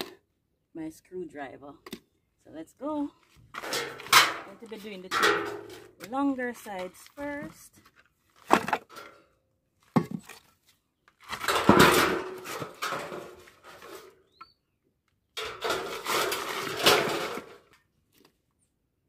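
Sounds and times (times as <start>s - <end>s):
metal sheets scraping and rattling: 3.6s - 6.2s, 11.3s - 14.2s, 15.4s - 17.7s.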